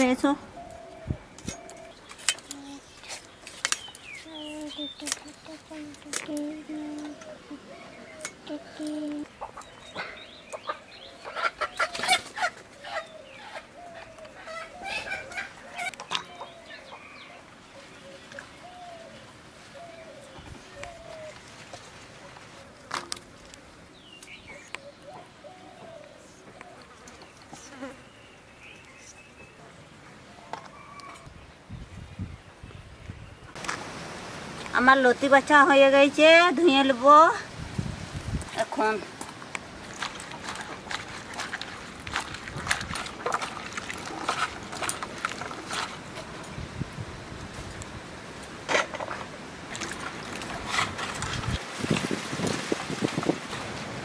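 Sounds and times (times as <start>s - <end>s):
small birds chirping: 0.0s - 22.7s, 23.9s - 33.6s
hands swishing water in bowl: 39.8s - 46.0s.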